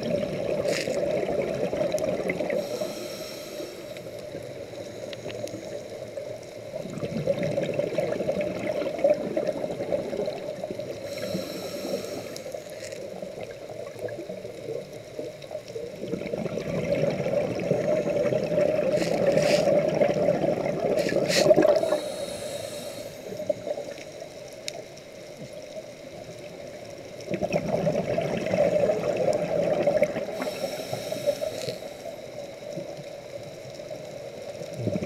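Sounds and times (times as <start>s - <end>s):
underwater exhaled bubbles: 0.0s - 35.0s
regulator inhalation hiss: 2.5s - 5.9s, 10.9s - 13.0s, 18.8s - 20.0s, 20.9s - 23.8s, 30.2s - 32.5s.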